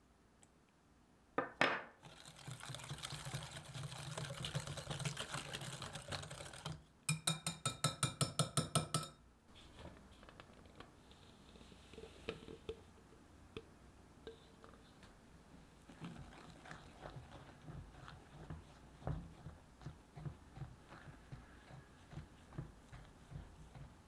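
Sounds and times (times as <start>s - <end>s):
whisk swishing in glass bowl: 2.0s - 6.8s, 15.8s - 24.0s.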